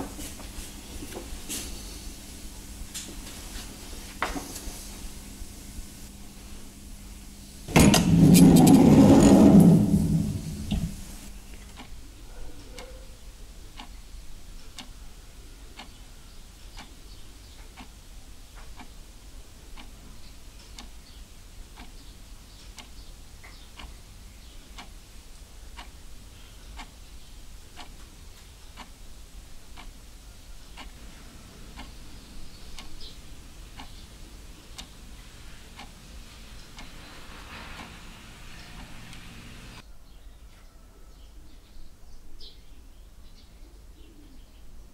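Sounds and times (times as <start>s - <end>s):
low steady hum: 0.0s - 18.4s
faint ticking: 19.7s - 25.1s, 25.7s - 39.8s.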